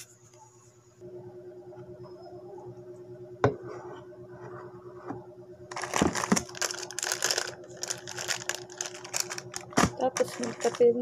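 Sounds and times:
low steady hum: 0.0 - 11.0
crinkling handling noise: 5.7 - 11.0.

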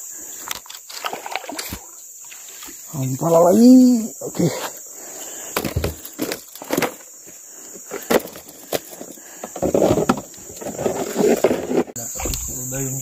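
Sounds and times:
high insect drone: 0.0 - 13.0
rough rustling noise: 5.7 - 12.3.

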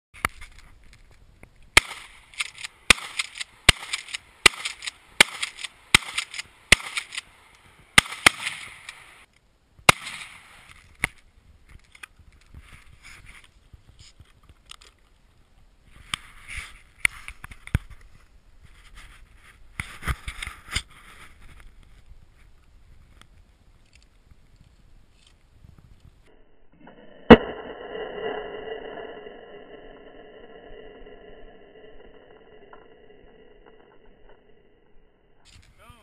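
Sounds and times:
rifle shots: 1.8 - 7.3, 8.0 - 9.2, 9.9 - 10.6.

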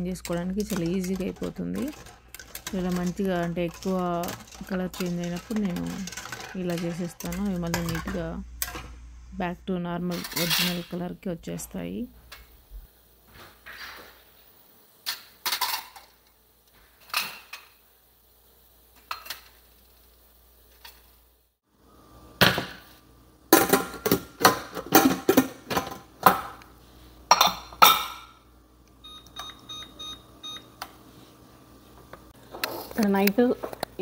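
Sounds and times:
metal vessels clinking: 0.0 - 8.9, 10.1 - 11.0, 27.3 - 28.4.

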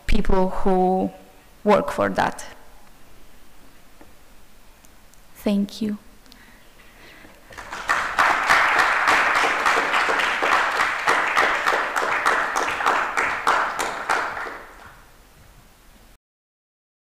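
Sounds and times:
audience applauding: 7.4 - 15.1.

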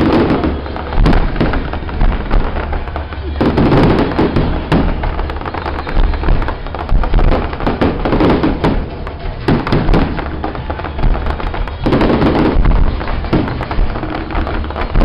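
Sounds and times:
fireworks bangs and pops: 0.0 - 15.0.

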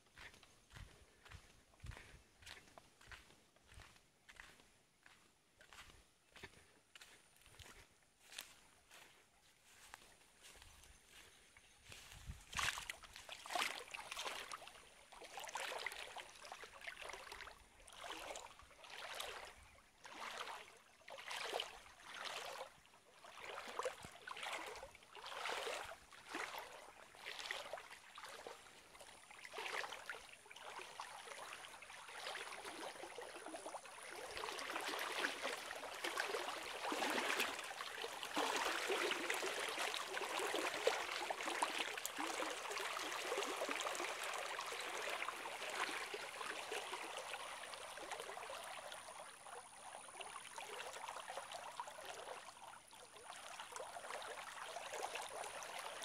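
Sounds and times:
water sloshing rhythmically: 0.0 - 56.0
rush of flowing water: 29.4 - 56.0.

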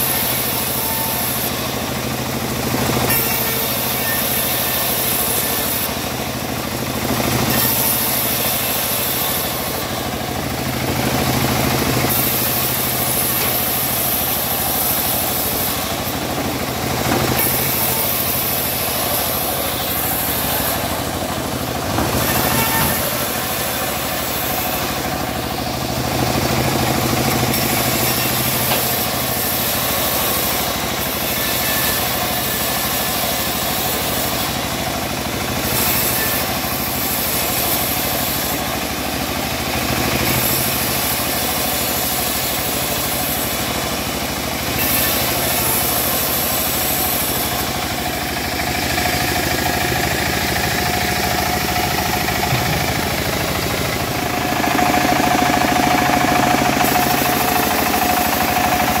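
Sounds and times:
band saw blade sawing wood: 0.0 - 1.8, 2.6 - 39.0, 39.6 - 59.0
steady machine drone: 0.0 - 59.0.

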